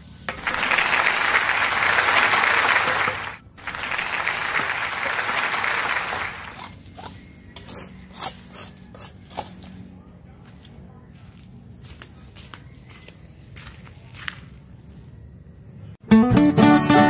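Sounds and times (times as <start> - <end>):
applause: 0.3 - 6.6.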